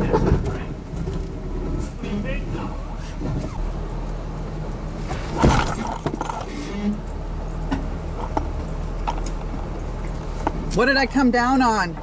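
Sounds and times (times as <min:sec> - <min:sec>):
engine idling: 0:00.0 - 0:12.0
clinks and knocks: 0:05.3 - 0:10.6.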